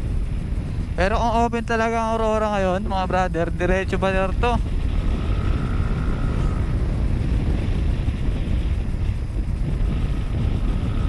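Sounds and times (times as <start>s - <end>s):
faint thin whine: 0.0s - 11.0s
wind on microphone: 0.0s - 11.0s
scooter engine running: 4.6s - 11.0s.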